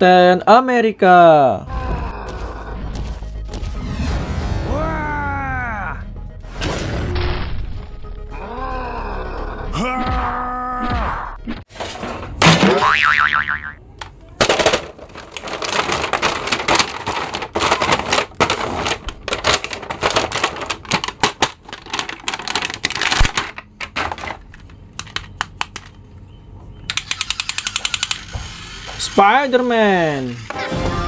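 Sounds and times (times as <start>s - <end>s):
plastic packaging crinkling: 14.5s - 24.7s
quick run of clicks: 26.9s - 29.1s.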